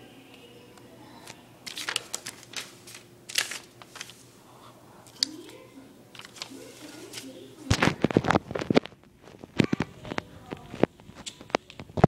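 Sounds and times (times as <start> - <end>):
paper rustling and sliding: 1.6 - 4.4, 6.2 - 9.4.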